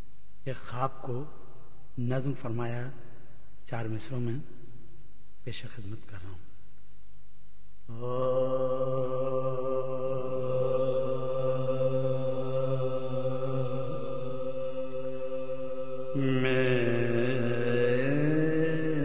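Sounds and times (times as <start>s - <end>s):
man chanting a long note: 7.9s - 19.0s.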